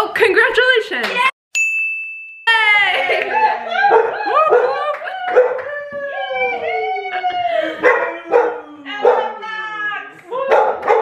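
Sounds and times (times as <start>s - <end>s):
people whooping and shrieking: 3.1s - 9.0s.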